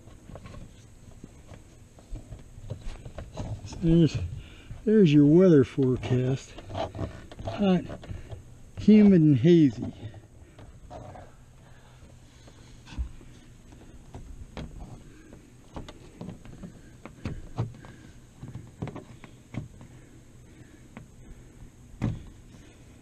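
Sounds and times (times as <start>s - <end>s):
taps knocks and canvas rustling: 22.0s - 22.4s
thumps: 22.0s - 22.4s.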